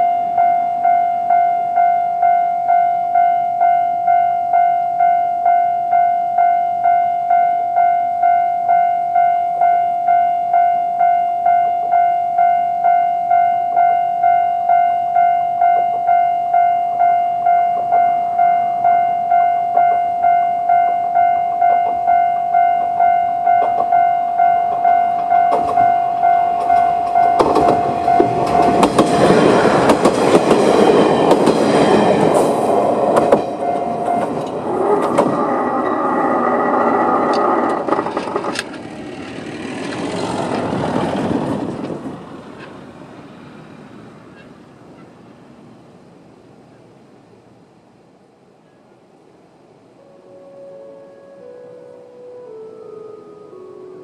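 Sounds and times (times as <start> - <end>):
level crossing warning bell: 0.0 - 37.4
train wheels clacking on rail joints: 24.7 - 25.9, 26.6 - 42.9.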